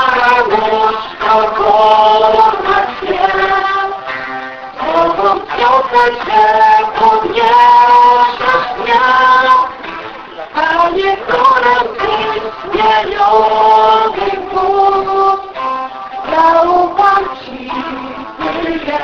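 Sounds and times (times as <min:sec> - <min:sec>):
people singing a slow song: 0:00.0 - 0:19.0.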